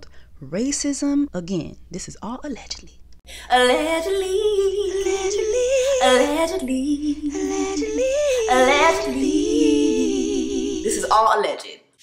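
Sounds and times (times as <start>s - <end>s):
woman singing wordless tune: 3.3s - 11.4s.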